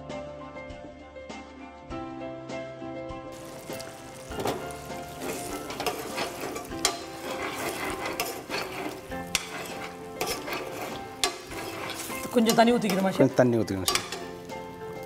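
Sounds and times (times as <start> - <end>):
faint sizzle: 3.3 - 15.0
ladle stirring thick curry: 3.4 - 14.5
ladle clinking against pan: 5.4 - 14.4.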